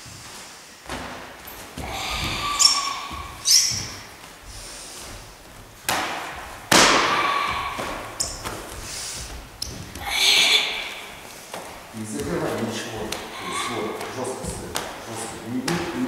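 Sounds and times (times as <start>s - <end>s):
karate blows thudding and slapping: 5.0s - 16.0s.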